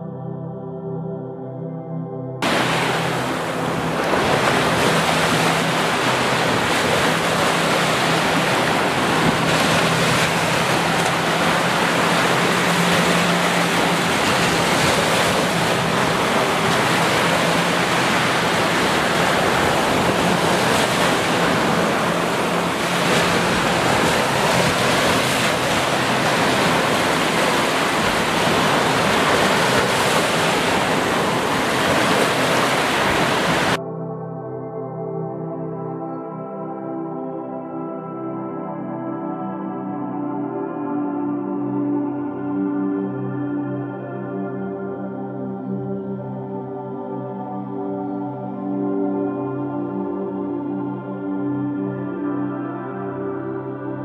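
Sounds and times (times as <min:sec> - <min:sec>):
ocean waves on sandy beach: 0:02.4 - 0:33.8.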